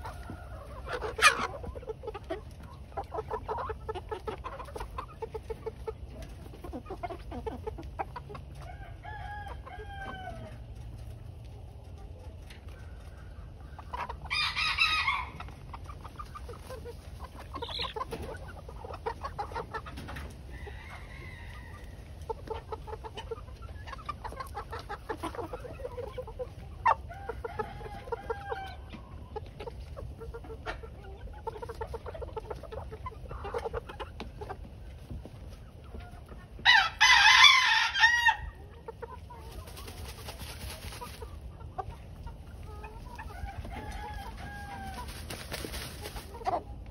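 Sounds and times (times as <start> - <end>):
young cockerels clucking: 0.0 - 46.9
rooster crowing: 8.6 - 10.6, 14.3 - 15.4, 36.7 - 38.5, 43.4 - 45.1.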